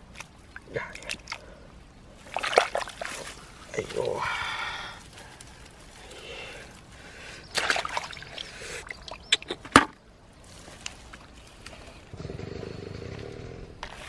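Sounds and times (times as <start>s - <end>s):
rustling of dry stems: 0.0s - 9.3s, 10.1s - 12.2s, 13.0s - 14.0s
water sloshing: 0.0s - 10.0s
stems snapping: 2.2s - 6.8s.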